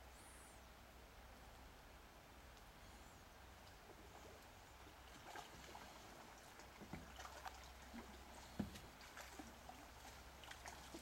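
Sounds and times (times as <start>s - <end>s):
shallow river murmuring: 1.8s - 11.0s.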